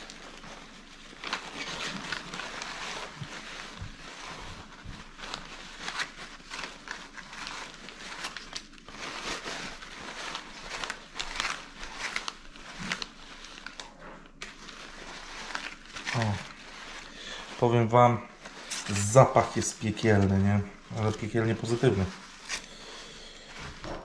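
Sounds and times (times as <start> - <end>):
paper towel crumpling: 0.0 - 24.0
plastic bags crinkling: 0.0 - 24.0.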